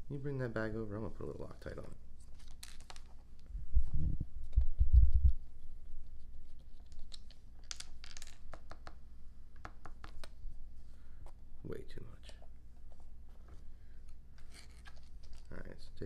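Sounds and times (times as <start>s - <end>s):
plastic crinkling: 1.6s - 3.5s, 14.4s - 15.8s.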